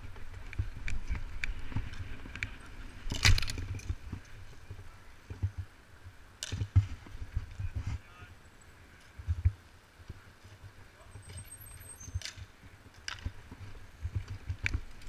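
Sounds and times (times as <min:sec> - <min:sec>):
bicycle rattling and clicking: 0:00.0 - 0:04.8
wind on microphone: 0:00.0 - 0:08.1.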